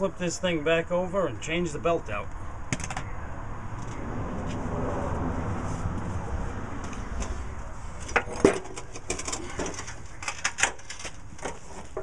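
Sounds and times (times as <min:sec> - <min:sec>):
metal mower deck clanking and scraping: 0:08.0 - 0:12.0.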